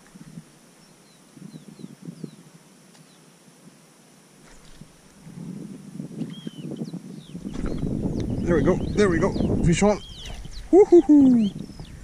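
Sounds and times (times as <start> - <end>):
wind rumbling on microphone: 0.0 - 0.6, 1.3 - 2.6, 4.4 - 12.0.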